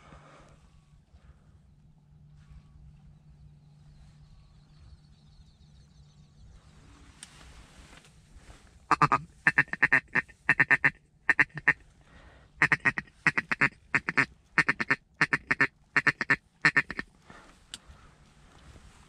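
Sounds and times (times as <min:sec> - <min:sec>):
duck call quacks: 0:08.9 - 0:11.8, 0:12.6 - 0:17.1.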